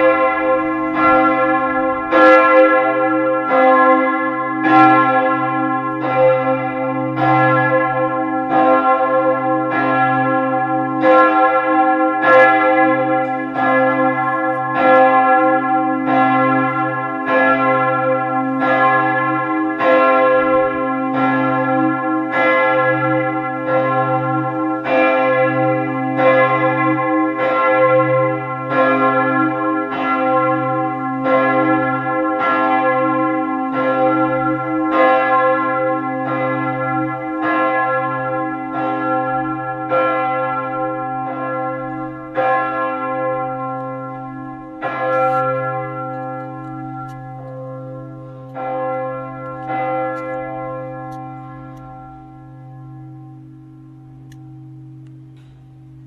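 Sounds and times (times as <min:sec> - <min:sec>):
church bell ringing: 0:00.0 - 0:56.0.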